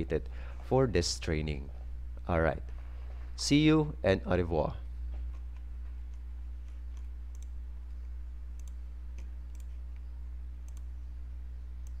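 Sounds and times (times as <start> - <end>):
low electrical hum: 0.0 - 12.0
computer mouse clicking: 5.3 - 7.6, 8.5 - 10.9.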